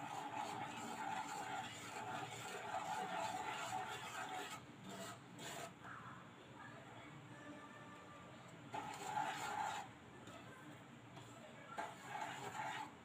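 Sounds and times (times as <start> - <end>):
spatula scraping a pan: 0.0 - 5.9, 8.7 - 10.0, 11.2 - 13.0.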